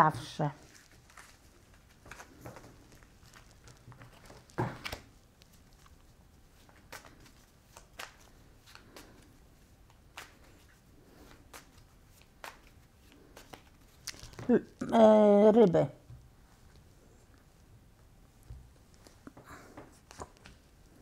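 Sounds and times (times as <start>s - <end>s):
cards being shuffled: 0.6s - 14.6s.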